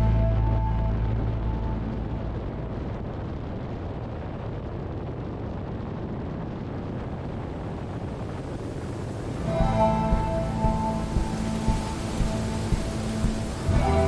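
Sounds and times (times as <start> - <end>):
wind rush on microphone: 0.0 - 14.0.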